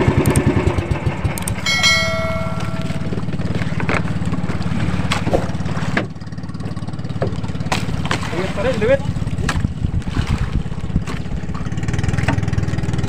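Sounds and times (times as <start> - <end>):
boat engine droning: 0.0 - 13.0
bell-like ding: 1.6 - 3.5.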